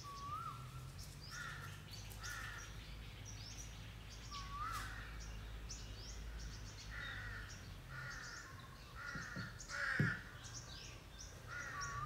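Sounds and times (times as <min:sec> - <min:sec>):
small birds chirping: 0:00.0 - 0:12.0
crow cawing: 0:06.9 - 0:10.4, 0:11.5 - 0:12.0
low knock: 0:09.1 - 0:10.2.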